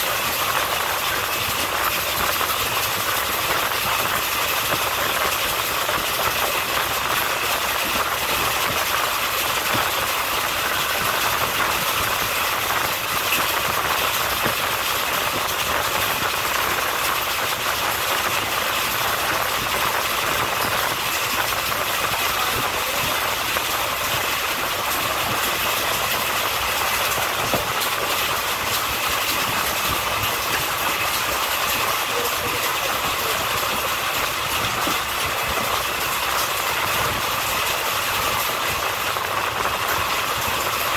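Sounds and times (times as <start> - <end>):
train wheels on rails rushing: 0.0 - 40.9.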